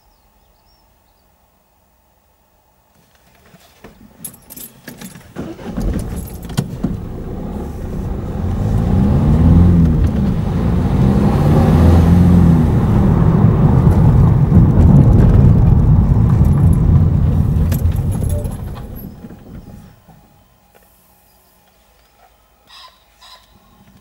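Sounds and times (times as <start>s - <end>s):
road noise inside car: 5.3s - 20.6s
car engine: 5.4s - 20.0s.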